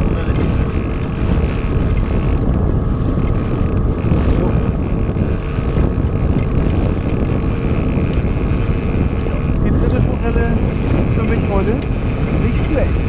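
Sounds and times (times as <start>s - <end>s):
outboard motor running: 0.0s - 13.0s
rush of wind and water: 0.0s - 13.0s.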